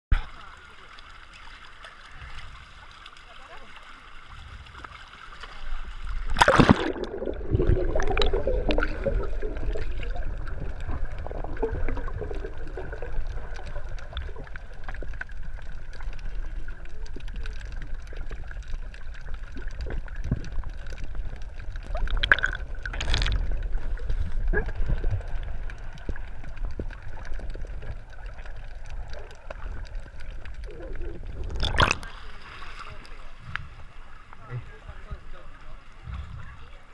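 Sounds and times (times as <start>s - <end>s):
muffled underwater rumble: 0.1s - 36.9s
water splash: 3.7s - 14.7s, 21.6s - 26.3s, 30.7s - 33.3s
faint clicks underwater: 4.6s - 32.1s
camera splashing into water: 6.3s - 8.9s, 22.1s - 23.4s, 31.5s - 32.1s.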